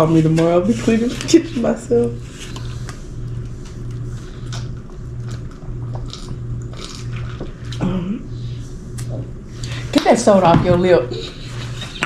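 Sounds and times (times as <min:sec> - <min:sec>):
steady low hum: 0:00.0 - 0:12.0
chewing and biting: 0:04.2 - 0:07.8.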